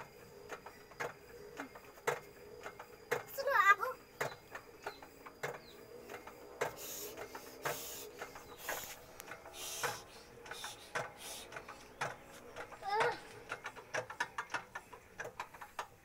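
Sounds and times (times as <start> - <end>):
metal clicks and knocks: 4.2 - 16.0
short hissing rustles: 4.7 - 13.4.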